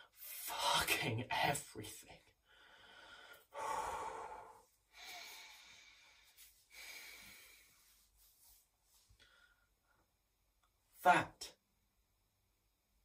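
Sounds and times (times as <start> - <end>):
man breathing heavily: 2.4 - 8.1.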